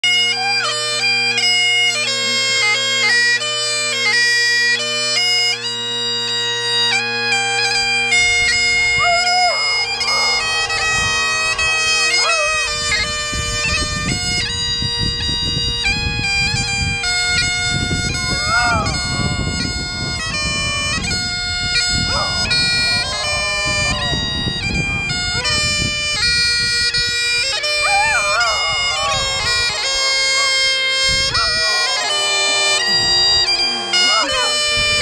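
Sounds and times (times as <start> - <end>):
bagpipes playing: 0.0 - 35.0
dog howling: 8.8 - 13.1, 18.1 - 19.4, 21.9 - 25.5, 27.6 - 35.0.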